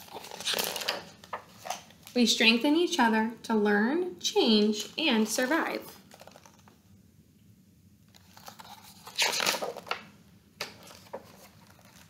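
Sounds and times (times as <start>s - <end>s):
stiff paper page rustling: 0.0s - 2.2s, 5.4s - 6.8s, 8.1s - 10.0s, 10.6s - 12.0s.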